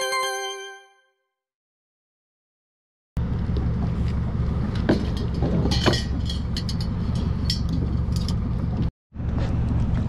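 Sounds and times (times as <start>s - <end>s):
engine humming: 3.2s - 10.0s
light clinks and ticks: 5.0s - 8.9s.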